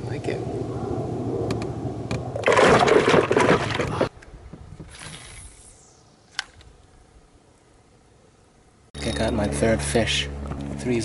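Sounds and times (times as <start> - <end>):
water splashing: 2.4 - 4.1.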